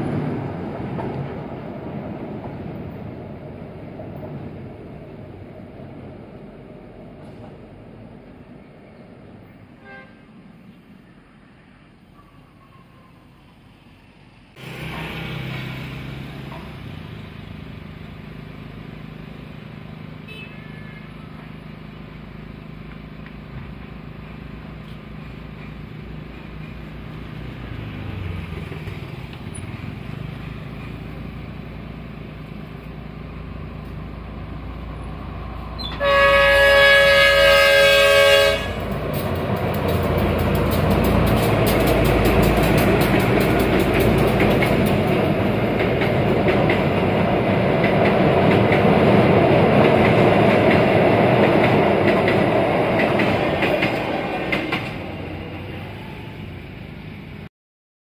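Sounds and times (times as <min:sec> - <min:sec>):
diesel train engine rumble: 0:00.0 - 0:57.5
train horn blast: 0:09.8 - 0:10.4, 0:20.2 - 0:21.2, 0:35.8 - 0:38.9
train wheels clicking on bridge: 0:14.6 - 0:17.2, 0:24.8 - 0:31.4, 0:38.6 - 0:55.4.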